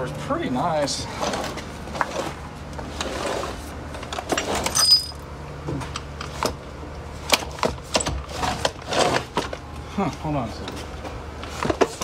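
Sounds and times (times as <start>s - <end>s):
sliding glass door rattling and scraping: 1.0s - 5.1s, 7.2s - 9.6s.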